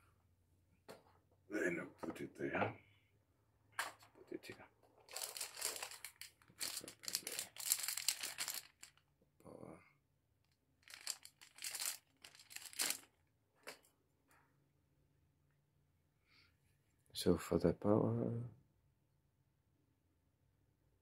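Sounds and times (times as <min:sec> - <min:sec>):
plastic packaging crinkling and tearing: 0:05.1 - 0:09.0, 0:10.8 - 0:13.1.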